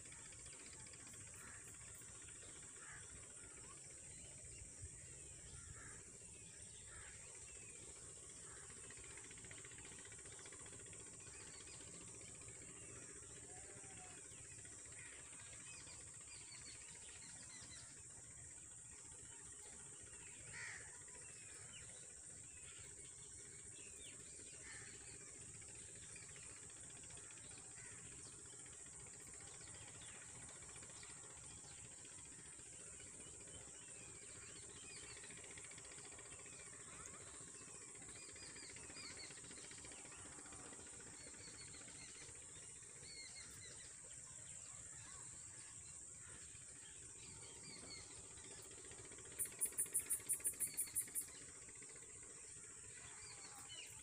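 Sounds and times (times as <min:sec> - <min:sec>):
faint bird chirps: 0:33.2 - 0:51.5
high-pitched insect hiss: 0:49.4 - 0:51.3.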